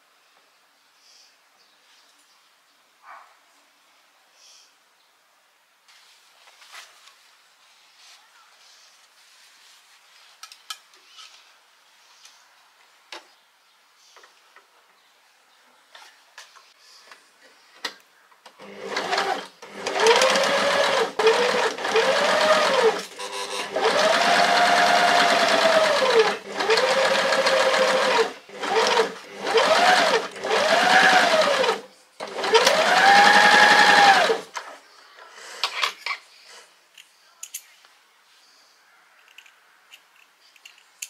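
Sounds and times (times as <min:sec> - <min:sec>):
sewing machine stitching: 0:18.6 - 0:34.6.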